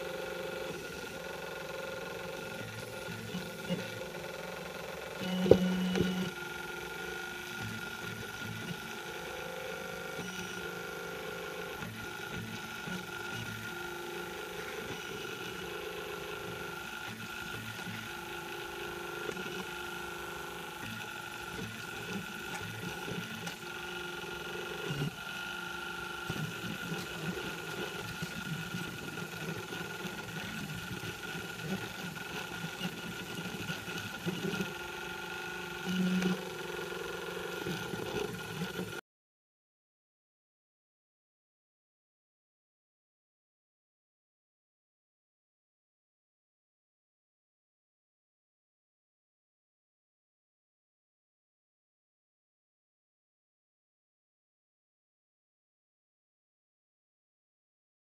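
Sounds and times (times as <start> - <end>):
steady high hum: 0.0 - 39.0
stepper motors whining: 0.0 - 39.0.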